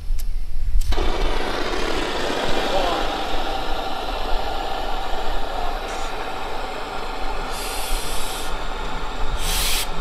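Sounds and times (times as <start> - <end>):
blowlamp roaring: 0.8 - 10.0
sharp hiss: 4.7 - 10.0.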